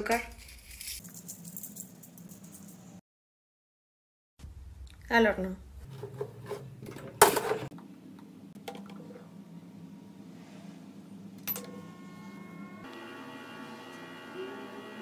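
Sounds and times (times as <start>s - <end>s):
oven hum and whine: 5.8s - 15.0s.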